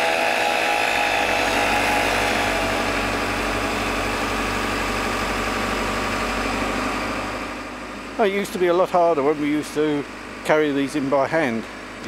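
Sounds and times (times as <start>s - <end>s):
disc cutter whining through steel: 0.0s - 6.2s
excavator diesel engine running: 0.0s - 12.0s.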